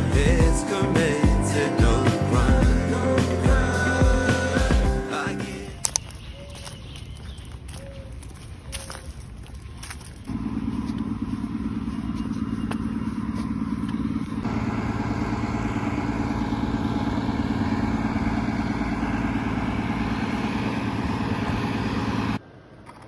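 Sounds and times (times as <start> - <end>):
motor drone: 10.3 - 22.4.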